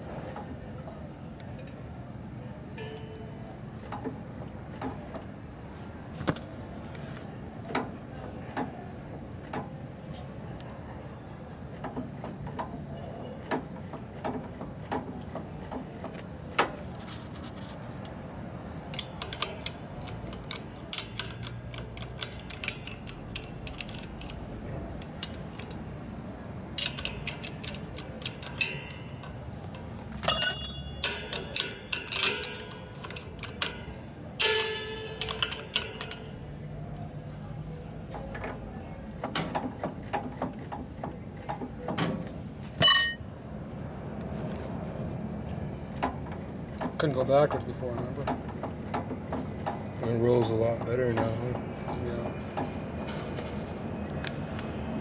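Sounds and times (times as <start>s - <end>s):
hand tools and metal parts clinking: 18.8s - 36.6s, 42.8s - 43.3s
sharp metal clanks: 26.8s - 36.5s, 42.8s - 43.3s.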